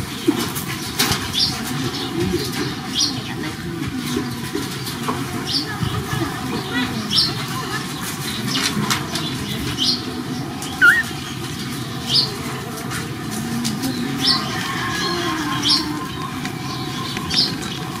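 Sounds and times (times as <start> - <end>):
high-pitched animal squeaks: 10.8 - 11.1
twisting animal cry: 10.8 - 11.2.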